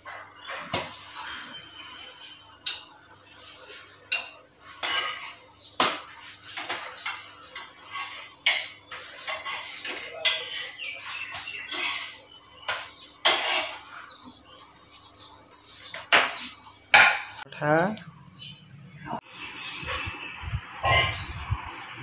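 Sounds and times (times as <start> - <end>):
metal spatula scraping frying pan: 0.1 - 14.0, 20.8 - 21.3
ceramic plate clattering: 4.1 - 6.0, 6.6 - 13.8.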